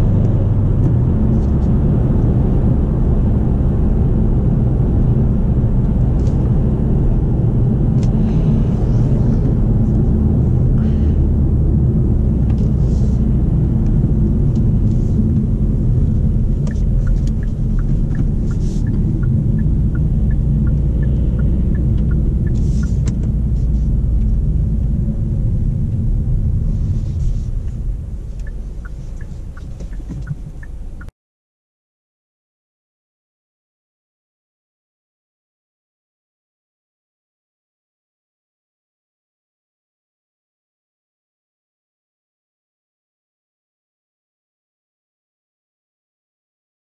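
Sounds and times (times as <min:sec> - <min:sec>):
engine and road rumble: 0:00.0 - 0:31.1
turn signal ticking: 0:12.3 - 0:25.0, 0:25.9 - 0:31.1.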